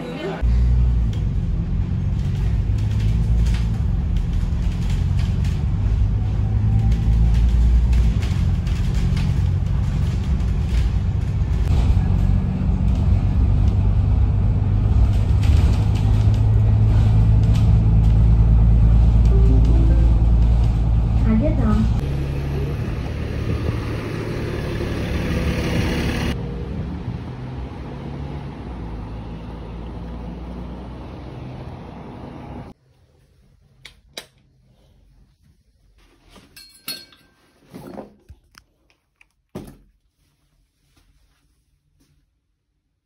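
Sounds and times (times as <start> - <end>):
vehicle engine rumble: 0.0 - 32.8.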